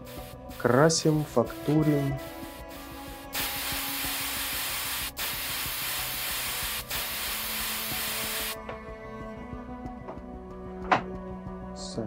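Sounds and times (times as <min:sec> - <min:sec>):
paint spray gun hissing: 0:00.0 - 0:00.9, 0:02.0 - 0:08.6.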